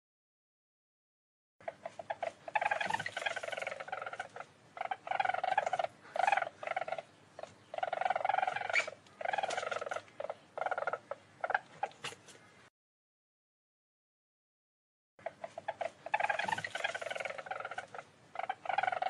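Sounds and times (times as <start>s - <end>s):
weasel trilling calls: 1.6s - 12.0s, 15.2s - 19.0s.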